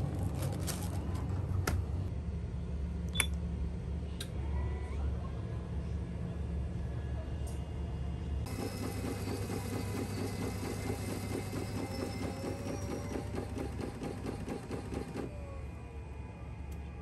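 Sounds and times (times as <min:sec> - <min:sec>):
coffee machine humming: 0:08.4 - 0:17.0.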